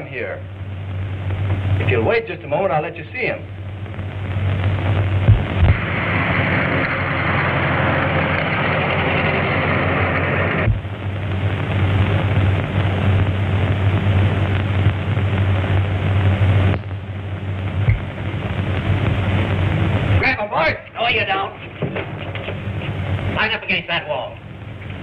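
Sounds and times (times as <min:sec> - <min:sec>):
steady low hum: 0:00.0 - 0:25.0
car engine and road noise: 0:05.3 - 0:10.9.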